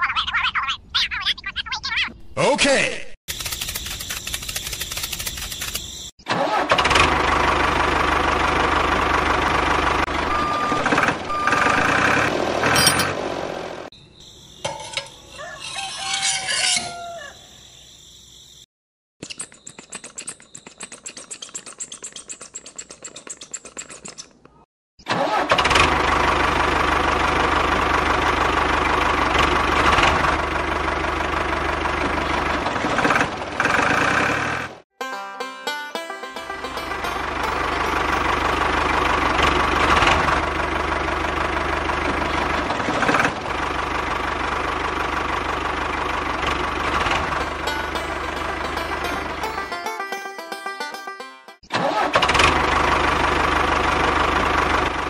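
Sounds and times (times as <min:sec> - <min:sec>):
engine humming: 0:06.8 - 0:13.9, 0:25.3 - 0:55.0.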